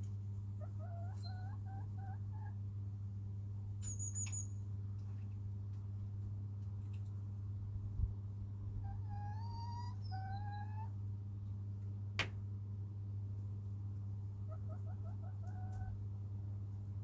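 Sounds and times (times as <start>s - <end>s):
hen calling and clucking: 0.5s - 2.6s, 8.8s - 11.0s, 14.4s - 16.0s.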